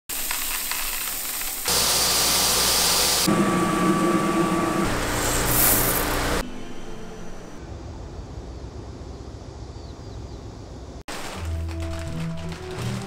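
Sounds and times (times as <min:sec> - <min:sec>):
coffee beans poured into plastic tub: 0:00.1 - 0:02.2, 0:05.2 - 0:06.2
coffee roaster machinery whirring: 0:00.1 - 0:07.5.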